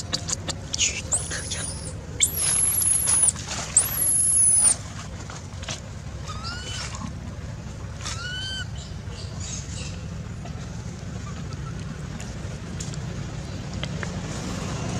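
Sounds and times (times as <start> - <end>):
monkey squealing: 0.0 - 4.8, 6.2 - 6.9, 8.1 - 8.8
monkey whimper calls: 0.0 - 4.8, 6.2 - 7.0, 8.0 - 8.9.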